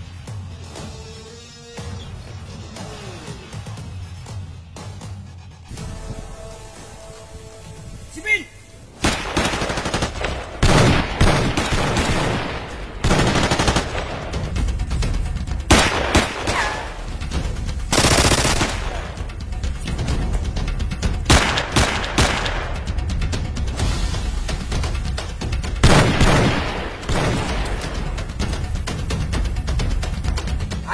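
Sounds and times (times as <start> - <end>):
music: 0.0 - 30.9
automatic gunfire: 9.0 - 14.2, 17.9 - 19.0, 25.8 - 27.6.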